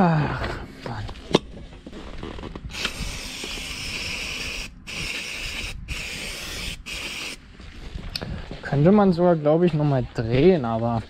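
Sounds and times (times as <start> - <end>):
aerosol spray can spurts: 2.7 - 7.4.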